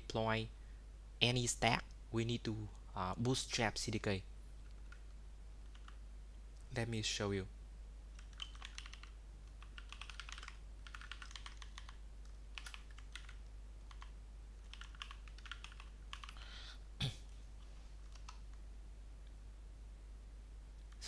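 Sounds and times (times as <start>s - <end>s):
typing on computer keyboard: 5.7s - 6.0s, 8.2s - 16.4s, 18.0s - 18.5s.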